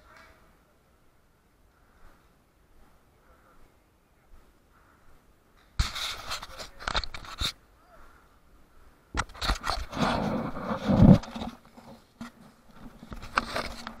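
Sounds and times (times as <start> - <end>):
camera being handled and jostled: 5.6 - 7.6, 9.2 - 14.0.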